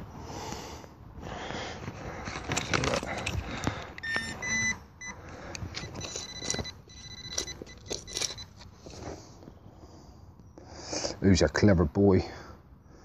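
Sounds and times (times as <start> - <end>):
soil and stones scraping probe: 1.8 - 9.2
metal detector beeping: 2.5 - 9.1.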